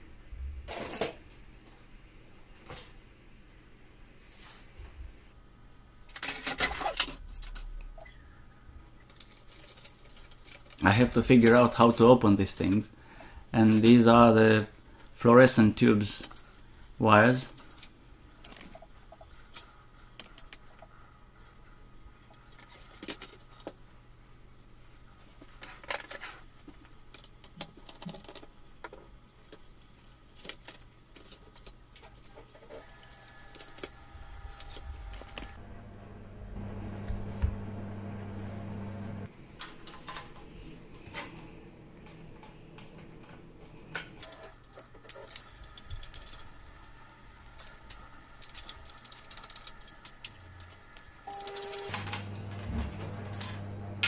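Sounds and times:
low hum: 0:34.0 - 0:39.3.

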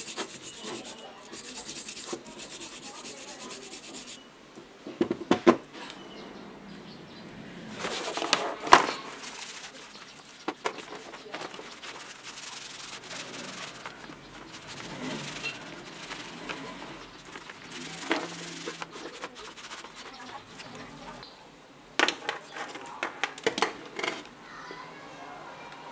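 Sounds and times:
brush scrubbing: 0:00.0 - 0:04.2, 0:07.7 - 0:21.2
hand scrubbing and rubbing: 0:00.0 - 0:04.2, 0:07.7 - 0:21.2.

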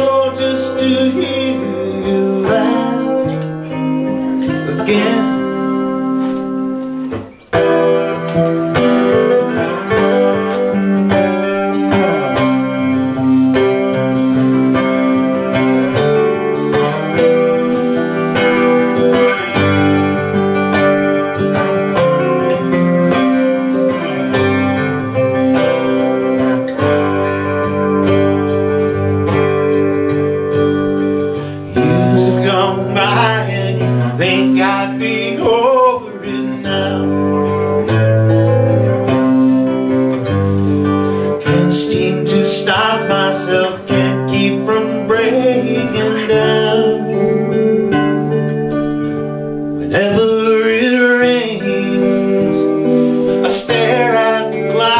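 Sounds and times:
guitars holding sustained chords: 0:00.0 - 0:54.9
wavering bending melody line: 0:01.0 - 0:36.0.

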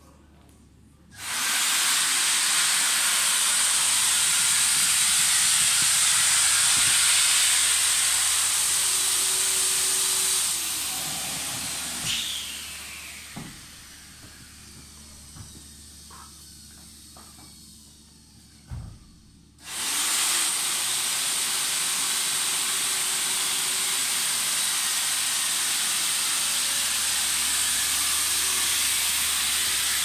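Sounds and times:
air hissing through hose: 0:01.2 - 0:18.0.

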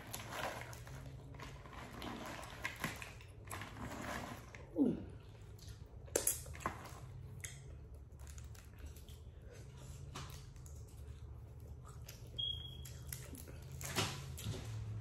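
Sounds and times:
faint low hum: 0:00.0 - 0:15.0
wet mouth clicks and smacks: 0:07.4 - 0:09.2.

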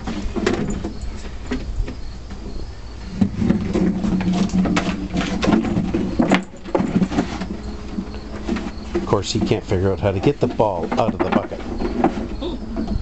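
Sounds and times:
plastic bucket scraping on wooden boards: 0:00.0 - 0:13.0.

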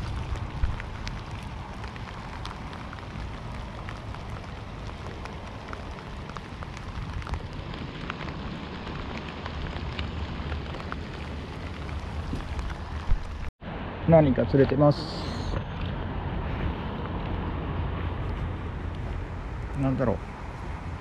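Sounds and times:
raindrops ticking close: 0:00.0 - 0:13.5, 0:18.2 - 0:21.0
steady rain: 0:00.0 - 0:21.0.

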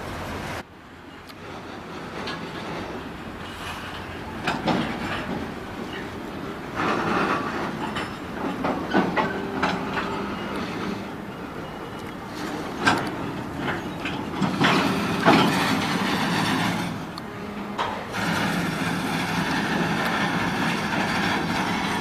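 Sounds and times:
steady train rumble: 0:00.0 - 0:22.0
train wheels clacking on rail joints: 0:01.1 - 0:22.0
sharp knocks and clanks: 0:03.8 - 0:06.1, 0:06.7 - 0:10.1.

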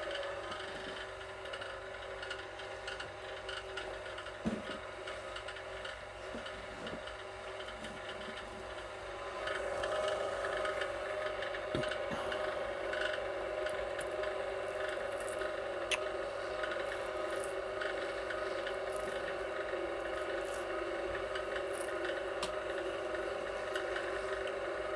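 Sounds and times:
wire stripper motor humming: 0:08.0 - 0:24.9
wire rubbing and clicking: 0:12.9 - 0:22.6.

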